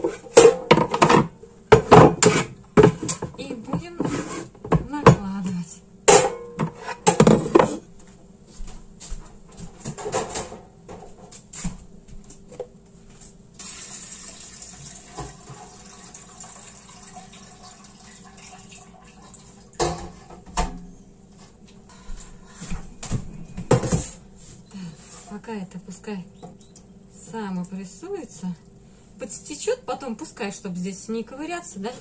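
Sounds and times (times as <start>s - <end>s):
liquid trickling and splashing: 13.6s - 19.8s.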